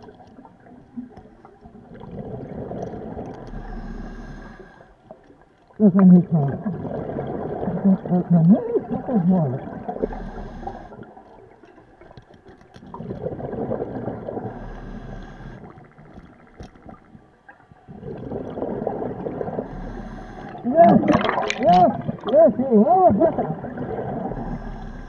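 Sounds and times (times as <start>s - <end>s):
diver exhaling bubbles: 1.8s - 4.6s, 6.2s - 11.1s, 12.9s - 16.1s, 17.8s - 22.4s, 23.1s - 25.0s
regulator hissing inhale: 3.5s - 5.0s, 10.0s - 11.0s, 14.5s - 15.7s, 19.6s - 20.6s, 24.3s - 25.0s.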